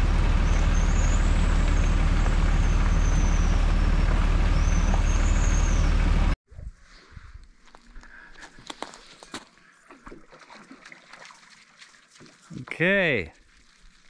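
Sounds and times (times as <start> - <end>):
vehicle driving on gravel: 0.0 - 6.4.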